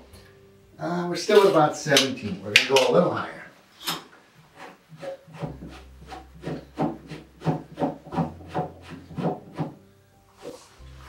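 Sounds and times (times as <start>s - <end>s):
threaded foot rubbing scrape: 4.5s - 11.0s.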